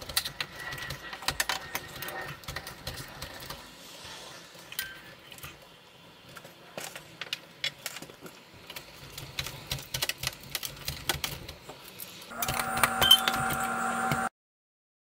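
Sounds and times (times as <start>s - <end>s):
steady hum with held tones: 12.3s - 14.3s.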